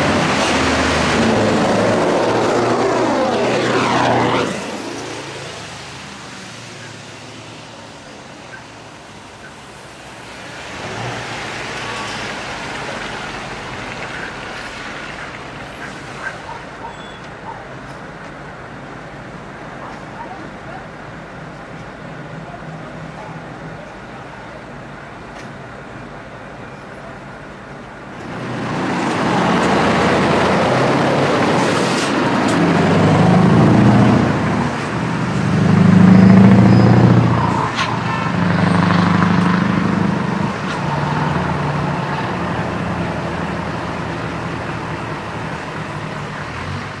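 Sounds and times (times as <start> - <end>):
truck engine pulling away: 0.0 - 6.2, 28.2 - 47.0.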